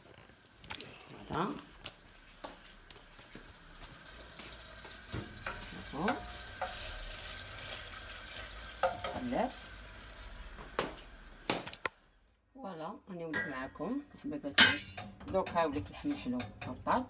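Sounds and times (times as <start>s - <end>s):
wooden spoon stirring in pot: 0.0s - 9.7s, 13.5s - 17.0s
syrup bubbling and sizzling: 0.0s - 12.1s.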